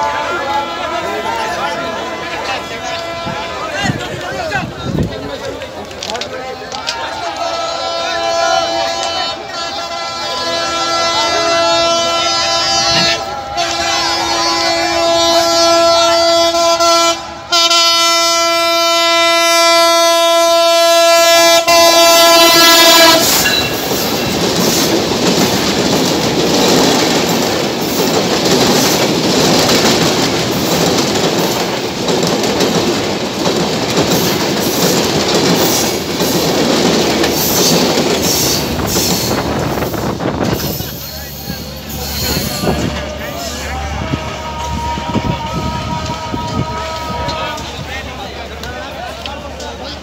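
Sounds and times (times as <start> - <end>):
locomotive horn blast: 0.0 - 3.9, 7.4 - 24.2, 38.2 - 47.8
train coaches rumbling past: 0.0 - 50.0
rail clatter: 21.9 - 50.0.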